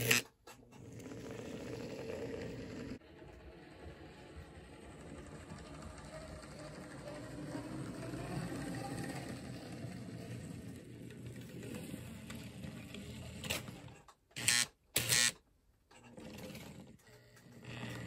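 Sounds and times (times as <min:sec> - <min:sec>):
model train motor hum: 0:00.9 - 0:12.9.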